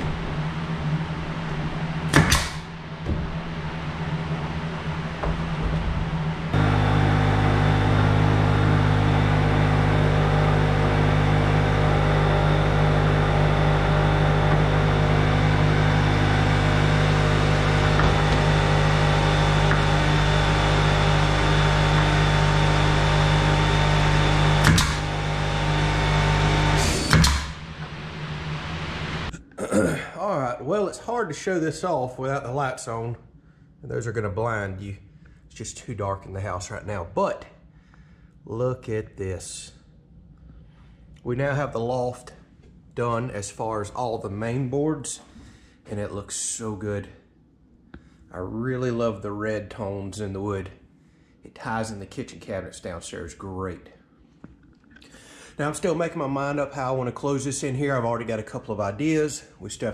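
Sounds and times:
air compressor humming: 0.0 - 29.4
pneumatic nailer shots: 2.1 - 2.8, 23.6 - 27.8.

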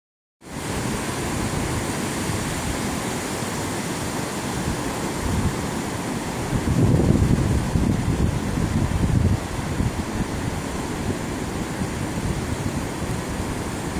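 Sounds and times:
ocean surf breaking: 0.4 - 13.9.

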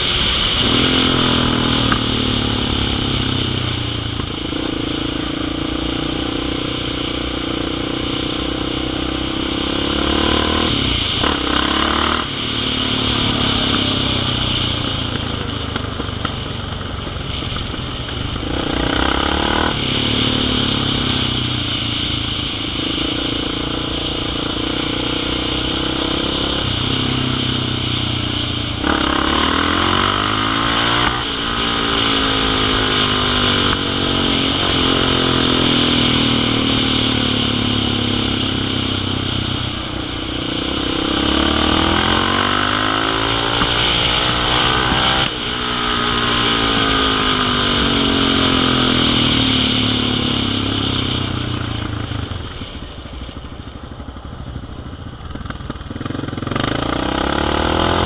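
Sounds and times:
quad bike engine revving: 0.0 - 52.6, 55.3 - 58.0.

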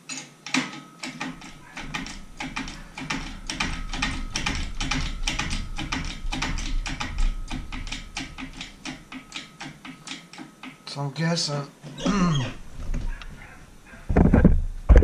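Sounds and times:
rapid uneven clicking and tapping: 0.6 - 11.0.

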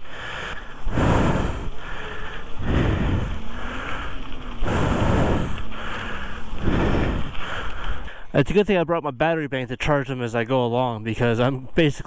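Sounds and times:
wind buffeting microphone: 0.8 - 8.0.

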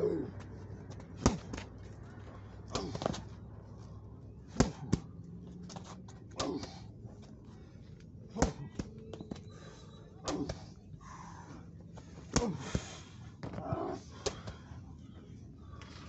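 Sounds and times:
person grunting: 0.0 - 0.4.

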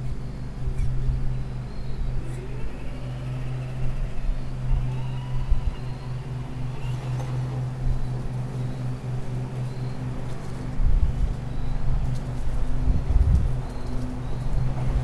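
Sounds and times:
steady low hum: 0.0 - 15.0
toy car electric motor whine: 1.4 - 8.9.

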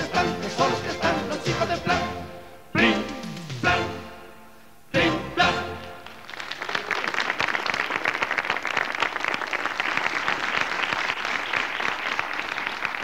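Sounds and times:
band playing final chords: 0.0 - 6.1
audience applause: 6.0 - 13.0.

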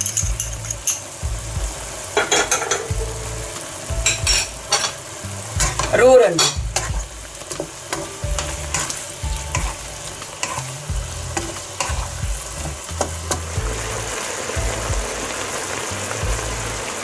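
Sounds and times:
food sizzling and bubbling in a wok: 0.0 - 17.0
spatula scraping and tapping pan: 5.6 - 10.7, 11.3 - 12.2.

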